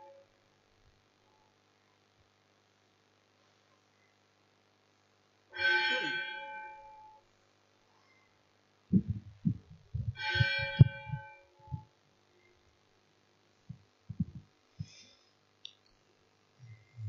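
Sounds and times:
chime ringing: 5.6 - 7.2
dull low thumps: 8.9 - 11.9, 13.7 - 15.0.

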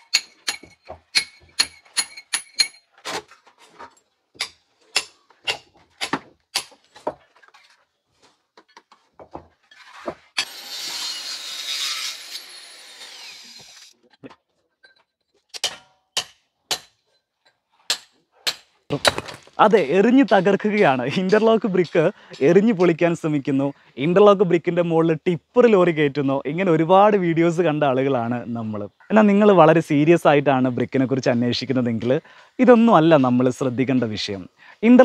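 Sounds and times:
power tool running: 10.4 - 13.9.

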